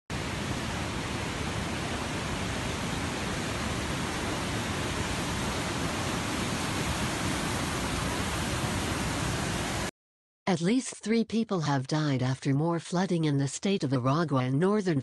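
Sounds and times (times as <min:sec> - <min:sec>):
floodwater rushing: 0:00.1 - 0:09.9.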